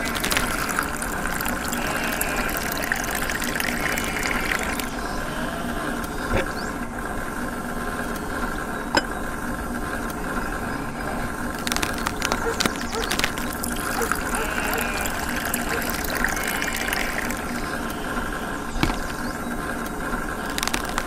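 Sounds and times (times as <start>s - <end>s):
water running: 0.0s - 5.2s, 11.5s - 19.3s
small electric motor whining: 0.0s - 7.5s, 10.2s - 20.8s.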